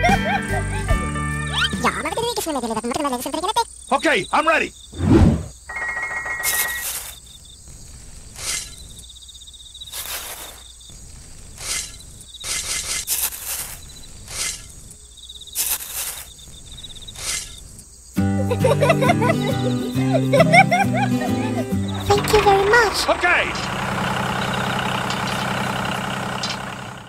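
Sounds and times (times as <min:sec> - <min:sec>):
music: 0:00.0 - 0:01.9, 0:18.2 - 0:22.6
high insect trill: 0:02.0 - 0:25.6
sand poured gritty hiss: 0:09.9 - 0:14.9, 0:15.6 - 0:16.4.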